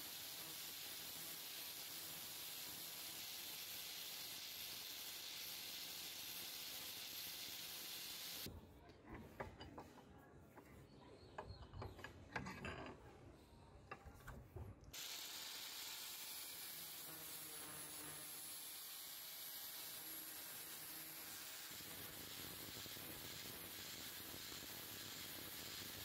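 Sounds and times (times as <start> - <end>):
metal clicks and knocks: 11.3 - 13.2.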